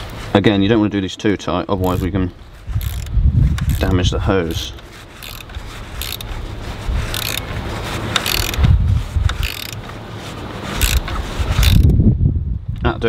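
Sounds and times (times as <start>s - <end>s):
ratchet clicking: 1.8s - 2.1s, 2.8s - 6.4s, 7.0s - 7.5s, 8.1s - 8.7s, 9.3s - 9.8s, 10.8s - 11.9s.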